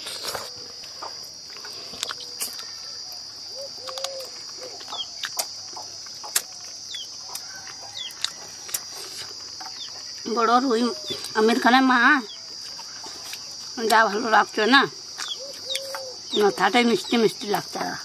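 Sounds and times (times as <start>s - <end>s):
insect drone: 0.0s - 18.0s
person chewing and lip-smacking: 3.8s - 10.1s
bird chirps: 15.2s - 17.2s.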